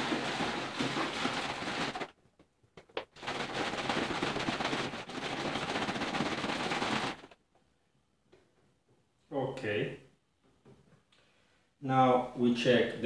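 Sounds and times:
liquid sloshing in shaken plastic bottle: 0.0s - 2.2s, 2.8s - 7.4s.

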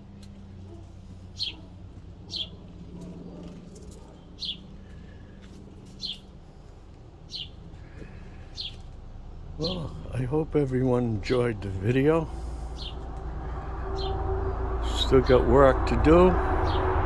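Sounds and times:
small bird chirping: 1.3s - 1.7s, 2.3s - 2.6s, 5.9s - 6.3s, 7.2s - 7.6s, 12.7s - 13.1s.

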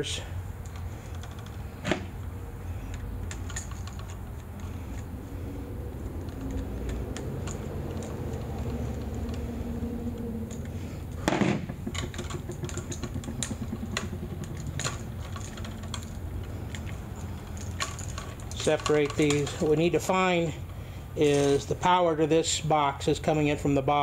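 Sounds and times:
low steady hum: 0.0s - 23.9s
screwdriver and wires clicking: 2.8s - 5.2s, 5.9s - 10.8s, 11.8s - 19.9s.

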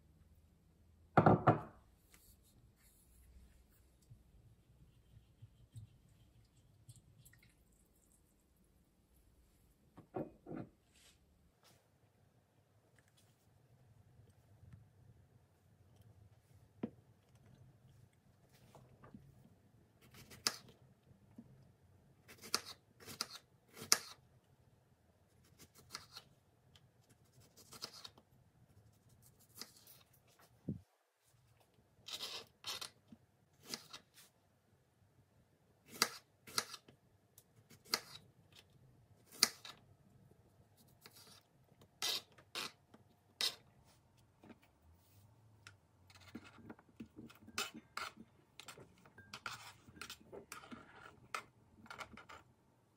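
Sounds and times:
knife scraping pieces off board: 42.0s - 42.8s.

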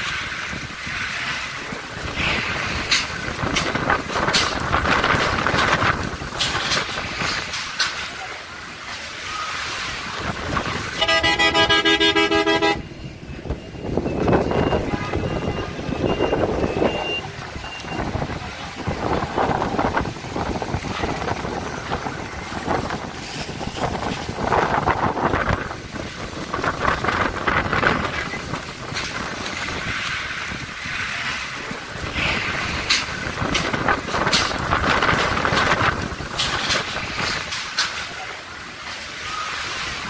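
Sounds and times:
wind gusting across microphone: 0.0s - 8.7s, 9.6s - 38.7s
car horn beeps: 11.0s - 13.0s.

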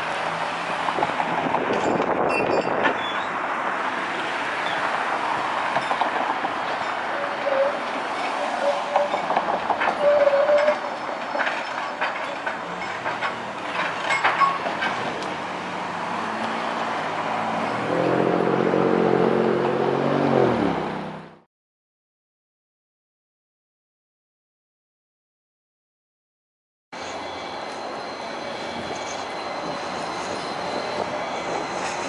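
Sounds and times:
trolley wheels clacking over track: 5.6s - 15.5s.

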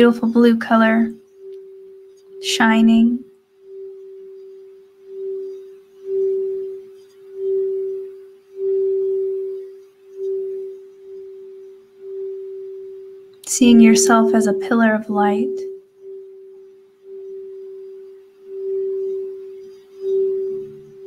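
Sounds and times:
singing bowl held tone: 0.0s - 21.0s.

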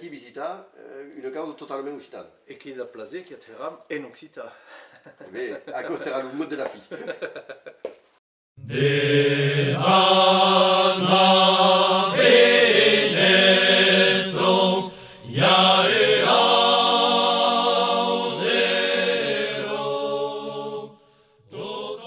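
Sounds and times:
chant-like singing: 8.6s - 22.0s.

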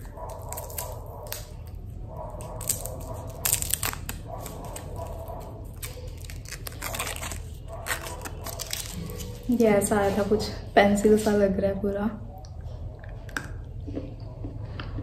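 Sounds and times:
candy wrapper crinkling and tearing: 0.0s - 9.6s.

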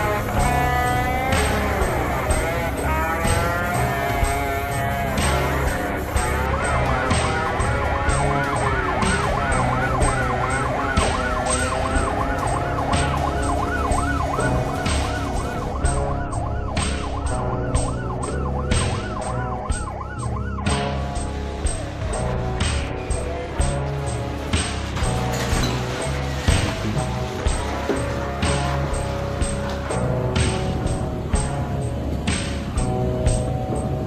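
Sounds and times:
siren yelping: 0.0s - 23.3s
background music with beat: 0.0s - 34.0s.

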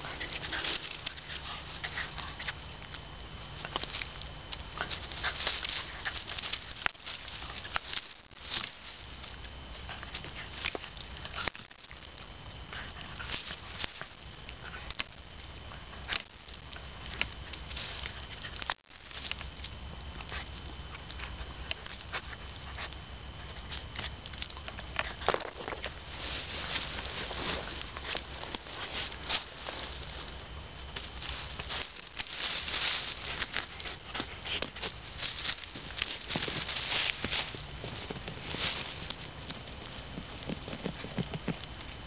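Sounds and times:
leaf litter rustling: 0.0s - 2.6s, 3.2s - 12.4s, 23.7s - 41.9s
dog digging and scraping: 0.0s - 2.7s, 3.5s - 12.0s, 20.2s - 30.4s, 31.0s - 41.6s
twigs snapping: 0.0s - 23.0s, 23.6s - 42.0s
sticks snapping: 16.1s - 20.3s.

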